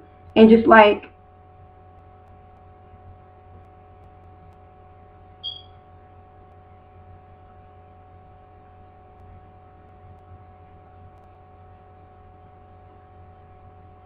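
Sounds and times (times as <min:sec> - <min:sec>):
steady electrical hum: 0:00.0 - 0:14.0
short high-pitched tone: 0:05.4 - 0:05.7.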